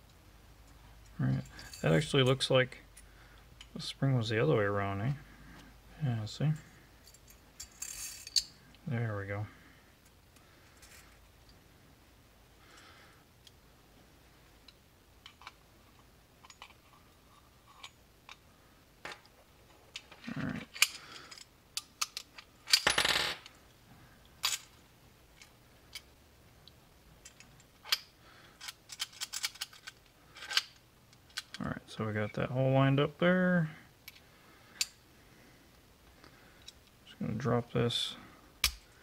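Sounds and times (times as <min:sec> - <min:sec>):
metal parts clicking and clinking: 0:01.0 - 0:02.4, 0:06.6 - 0:08.6, 0:15.2 - 0:17.0, 0:19.9 - 0:23.6, 0:27.2 - 0:31.6.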